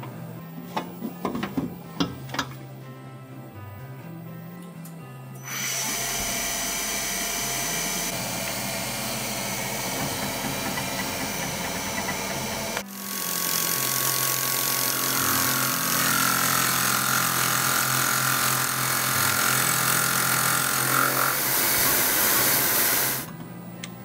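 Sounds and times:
milling machine cutting metal: 0:05.5 - 0:23.3.

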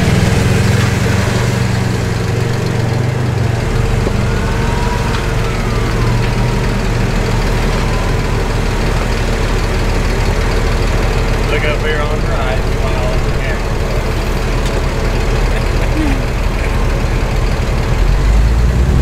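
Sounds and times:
car engine running at low speed: 0:00.0 - 0:19.0.

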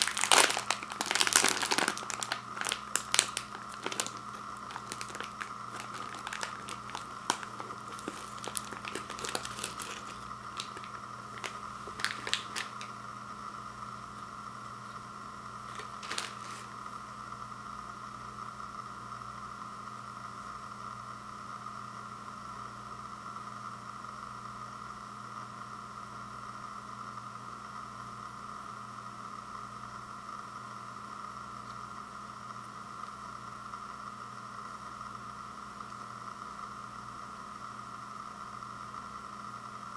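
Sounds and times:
foil cookie pack crinkling: 0:00.0 - 0:13.0, 0:15.6 - 0:16.8
steady background hum: 0:00.0 - 0:39.9.

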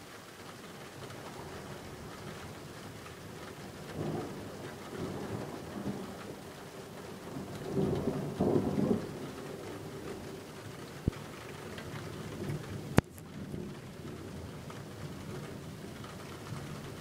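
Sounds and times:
steady rain: 0:00.0 - 0:17.0
thunder rumbling: 0:03.9 - 0:17.0.

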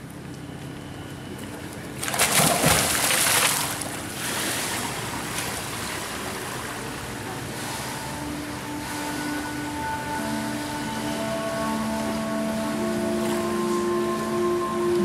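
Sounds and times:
water sloshing and churning: 0:00.0 - 0:15.0
person splashing into pool: 0:02.0 - 0:04.8.

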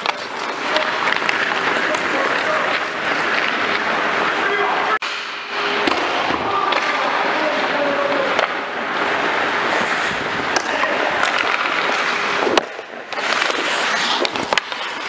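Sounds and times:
skates scraping on ice: 0:00.0 - 0:05.0, 0:06.6 - 0:15.0
hockey sticks and puck clacking: 0:00.0 - 0:15.0.

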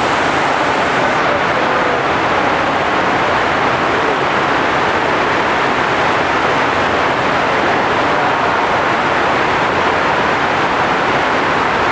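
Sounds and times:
loud steady rush of water: 0:00.0 - 0:11.9.

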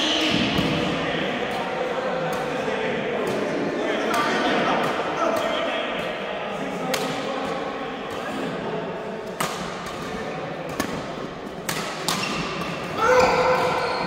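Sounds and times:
rackets hitting shuttlecock: 0:00.2 - 0:08.6, 0:09.2 - 0:14.0
shoe squeal: 0:13.0 - 0:14.0.

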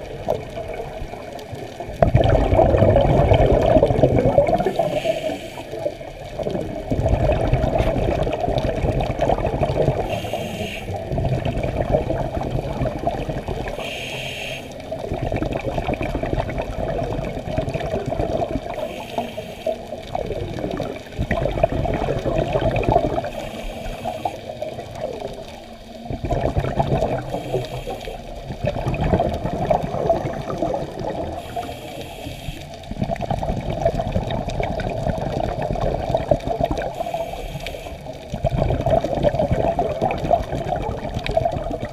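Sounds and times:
bubbling exhaled air underwater: 0:00.0 - 0:41.9
regulator hiss: 0:04.6 - 0:06.0, 0:10.0 - 0:11.0, 0:13.6 - 0:15.0, 0:18.7 - 0:20.0, 0:23.2 - 0:24.6, 0:27.2 - 0:28.4, 0:31.3 - 0:32.9, 0:36.9 - 0:38.2.

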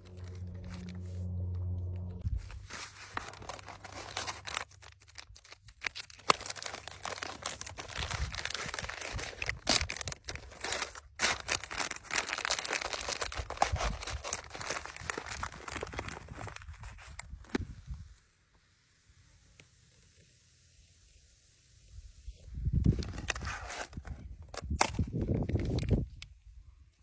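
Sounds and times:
plastic packaging crinkling: 0:00.0 - 0:01.4, 0:02.3 - 0:17.4.

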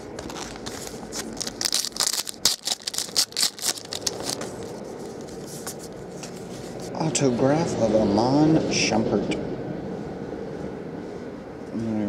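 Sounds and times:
foil card pack crinkling: 0:00.0 - 0:06.0
steady background noise: 0:00.0 - 0:12.0.

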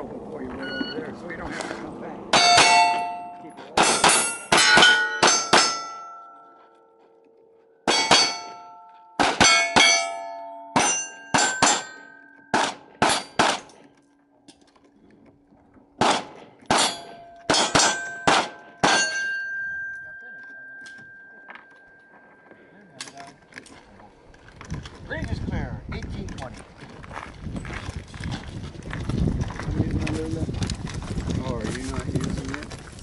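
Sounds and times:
steel plate targets clanging: 0:02.3 - 0:06.4, 0:07.9 - 0:13.9, 0:16.0 - 0:22.2
pistol shots: 0:12.5 - 0:13.8, 0:16.0 - 0:19.1.

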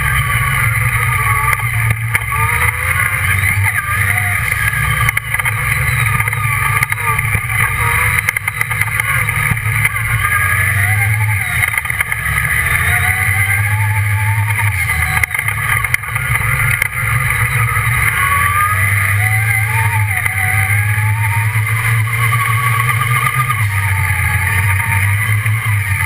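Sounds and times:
buggy engine revving: 0:00.0 - 0:26.0.

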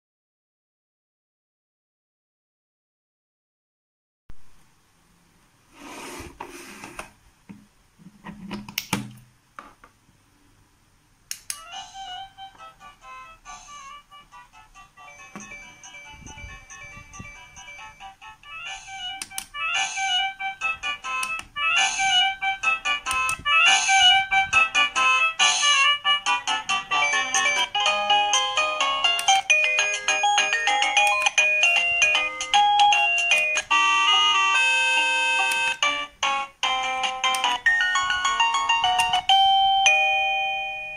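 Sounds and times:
electronic doorbell chime: 0:15.0 - 0:18.1, 0:26.9 - 0:40.9.

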